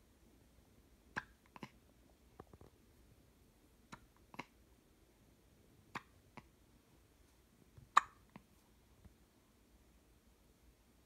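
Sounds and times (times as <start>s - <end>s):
baby hiccuping: 3.9s - 4.6s, 7.9s - 8.2s.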